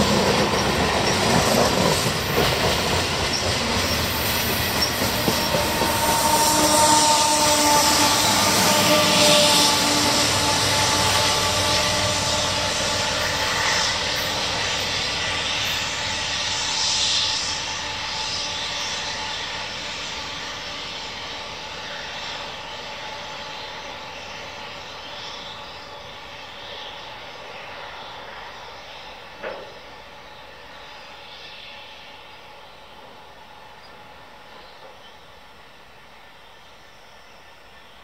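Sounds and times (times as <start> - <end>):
train cars rolling: 0.0 - 24.4
freight train engine drone: 0.0 - 38.0.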